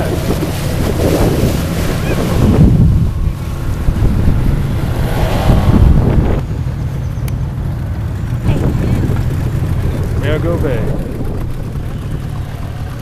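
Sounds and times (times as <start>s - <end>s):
water rushing and splashing: 0.0s - 6.9s
outboard motor running: 0.0s - 13.0s
wind buffeting microphone: 0.0s - 13.0s.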